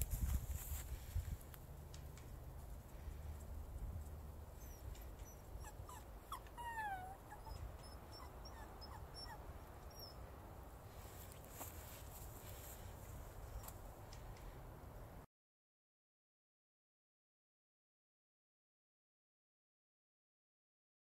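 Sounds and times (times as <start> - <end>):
dog whining: 4.6 - 10.2.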